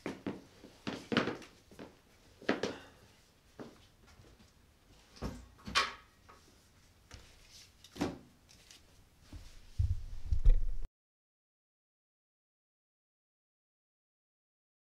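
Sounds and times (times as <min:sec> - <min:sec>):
footsteps: 0:09.2 - 0:10.9.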